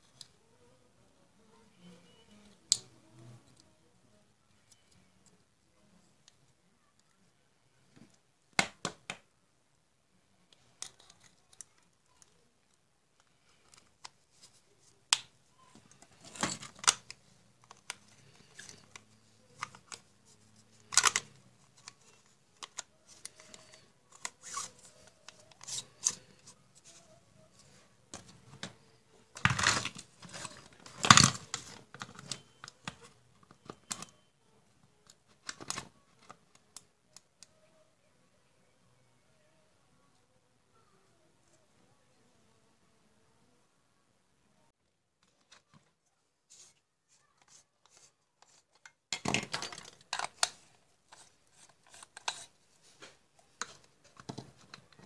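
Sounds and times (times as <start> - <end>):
hard plastic clicking and scraping: 15.1 - 27.0, 47.4 - 55.0.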